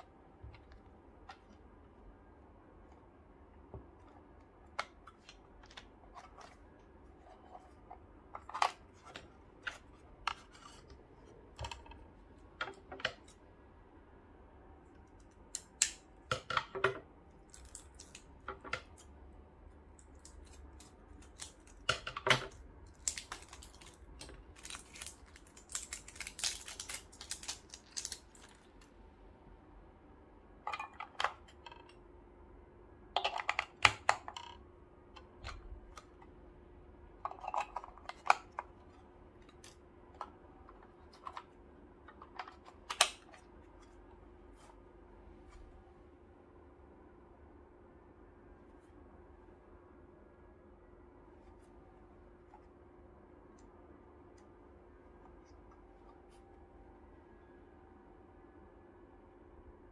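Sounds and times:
packaging rustling: 22.9 - 28.9.

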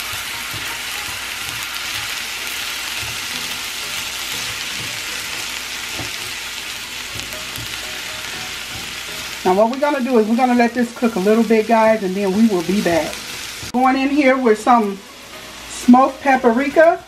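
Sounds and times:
food sizzling in a skillet: 0.0 - 17.0
spatula knocking the pan: 5.9 - 6.3.

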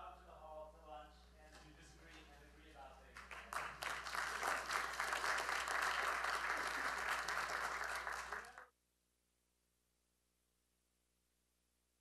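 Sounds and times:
audience applauding: 3.2 - 8.7.

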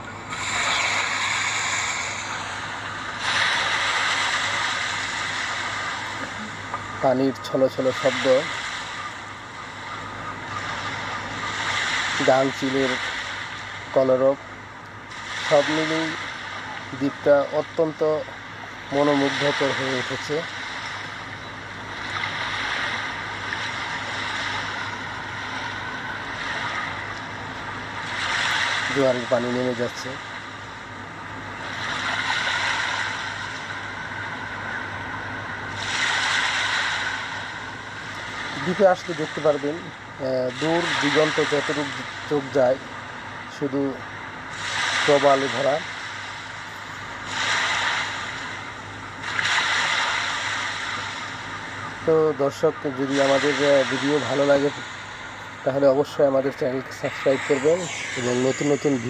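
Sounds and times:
surf on a beach: 0.0 - 59.0
wind: 0.0 - 59.0.

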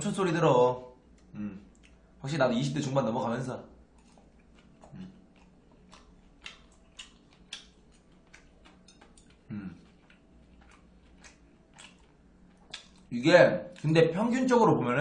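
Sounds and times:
man chewing: 1.1 - 2.1, 3.9 - 13.1
man humming low: 1.4 - 1.6.

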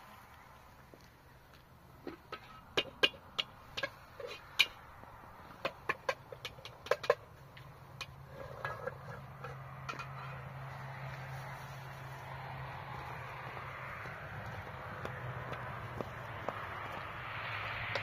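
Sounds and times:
utensil scraping metal pan: 8.0 - 10.5.

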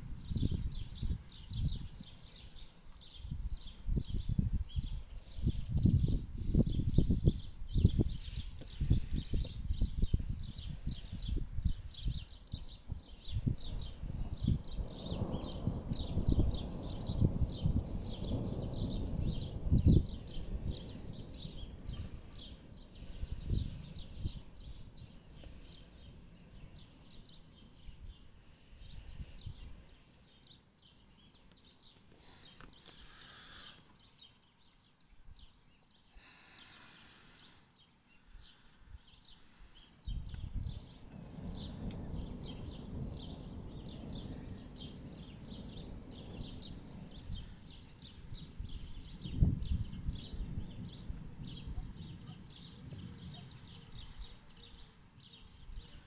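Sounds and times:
small birds chirping: 0.0 - 56.0
distant thunder rumbling: 12.8 - 26.3, 40.5 - 54.9.

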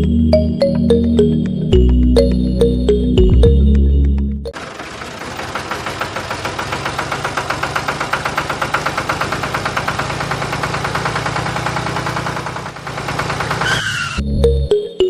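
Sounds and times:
tractor engine chugging: 4.5 - 14.7.

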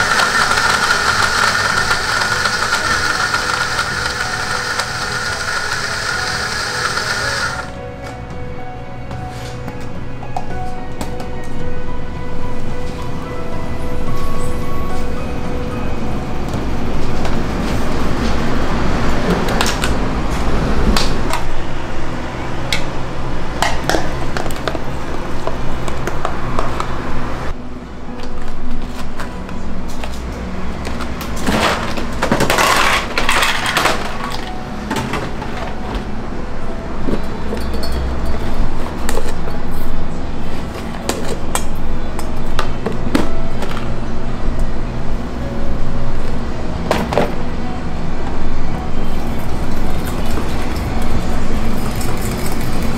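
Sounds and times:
soft background music: 0.0 - 52.9
cups and utensils clinking: 37.1 - 38.5.

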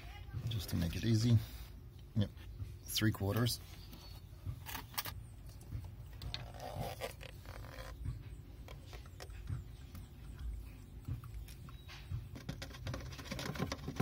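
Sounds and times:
plastic bottle clicks and scrapes: 12.3 - 14.0.

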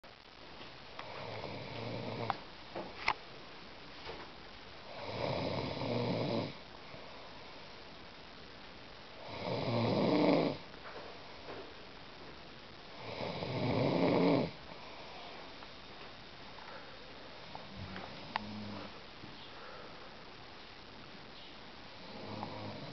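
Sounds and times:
boy snoring: 1.0 - 2.4, 4.9 - 6.6, 9.2 - 10.6, 12.9 - 15.0, 18.2 - 19.0, 22.0 - 22.9.

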